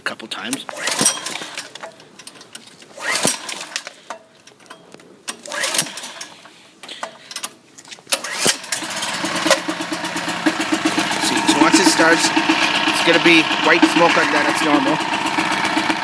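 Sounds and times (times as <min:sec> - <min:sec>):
engine pull-start cranking: 0:00.7 - 0:16.0.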